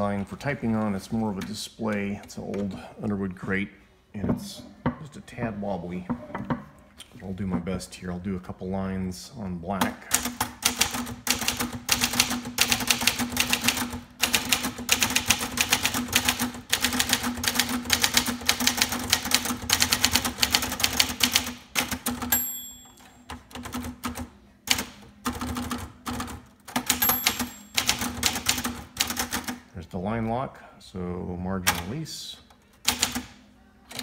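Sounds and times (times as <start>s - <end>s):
typewriter margin bell ringing: 22.3s - 23.3s, 26.9s - 28.1s.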